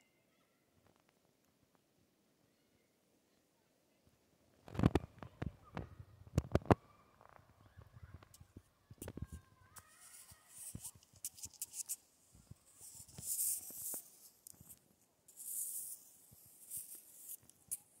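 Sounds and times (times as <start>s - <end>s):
small clicks and ticks: 8.2s - 17.9s.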